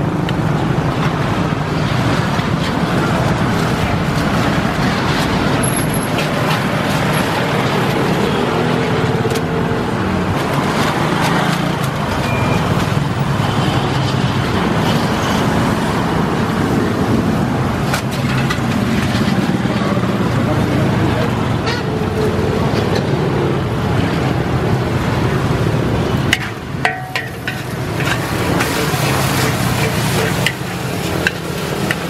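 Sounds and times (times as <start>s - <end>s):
noodles frying in a wok: 23.6s - 32.0s
metal spatula scraping a pan: 26.4s - 32.0s.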